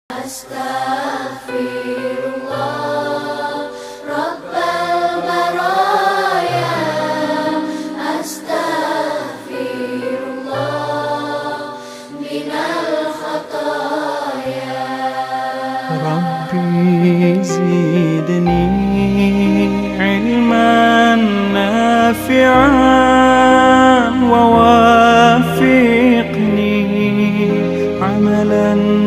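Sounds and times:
slow vocal chant: 0.1s - 29.0s.

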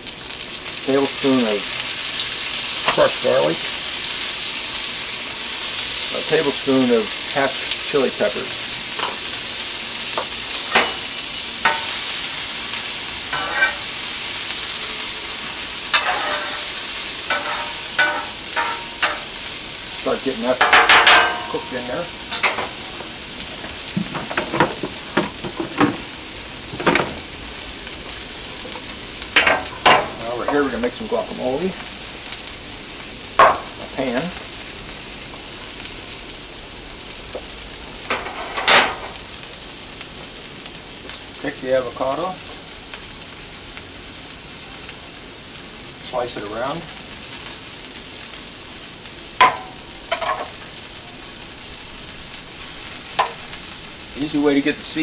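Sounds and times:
vegetables sizzling in oil: 0.0s - 55.0s.

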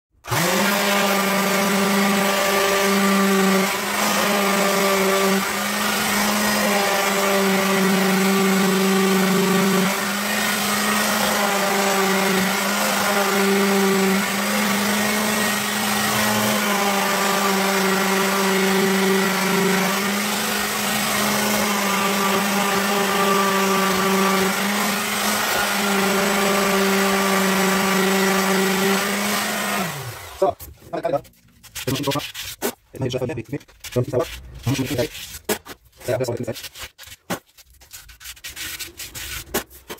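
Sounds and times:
electric sander humming: 0.3s - 30.5s.

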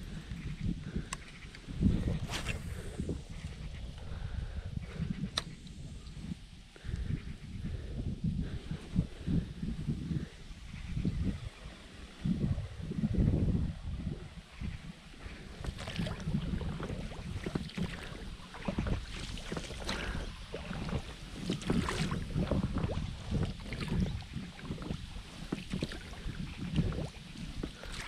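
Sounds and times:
wind rumble on microphone: 0.0s - 28.0s
water splashing around boat: 15.3s - 28.0s.

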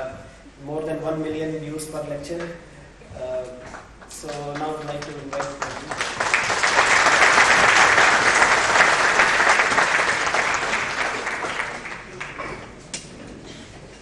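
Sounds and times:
audience applauding: 4.3s - 12.8s.

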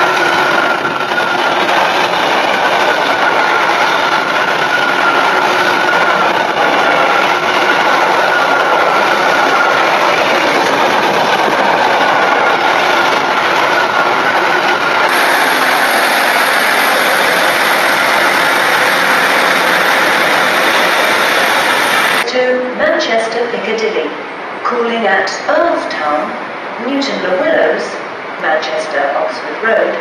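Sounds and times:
freight train wheels on rail: 0.0s - 22.3s
passenger train moving: 0.0s - 30.0s.

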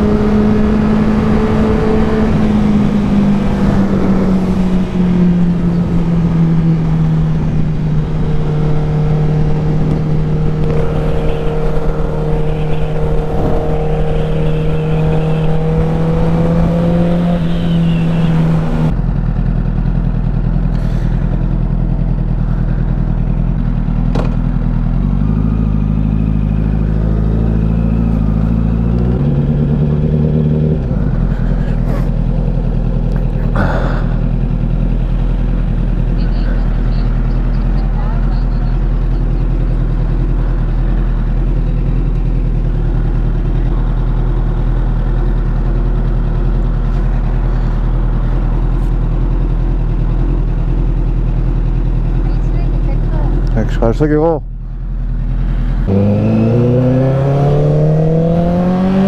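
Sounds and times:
rushing wind: 0.0s - 19.0s.

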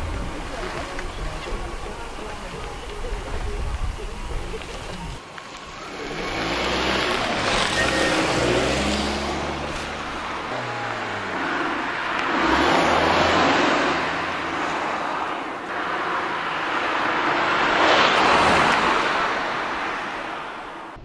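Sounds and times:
car passing close by: 5.6s - 21.0s.

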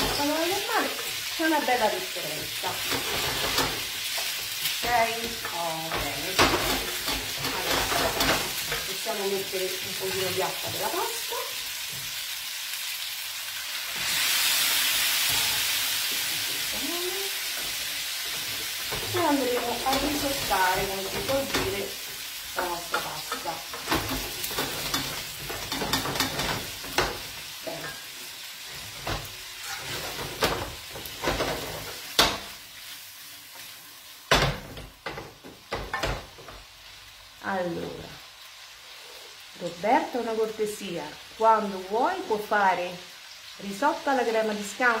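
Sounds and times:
pasta sizzling in a pan: 0.0s - 45.0s
pan and utensil knocking: 22.9s - 28.0s.

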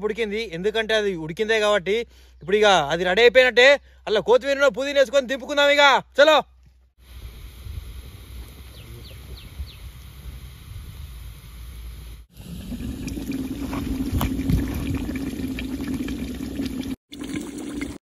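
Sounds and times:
curry bubbling in a clay pot: 12.3s - 18.0s.

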